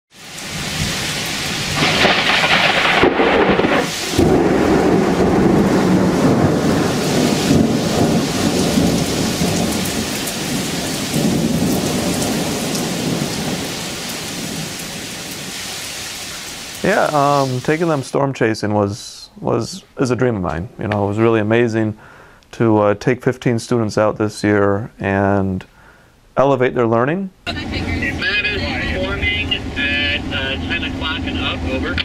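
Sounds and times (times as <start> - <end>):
steady rain: 0.1 - 18.2, 27.5 - 32.0
thunder crash and rumble: 0.4 - 15.6.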